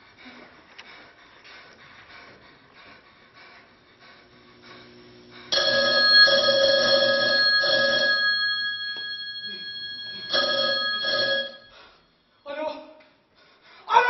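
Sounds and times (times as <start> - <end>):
telephone bell ringing: 5.6 - 11.9.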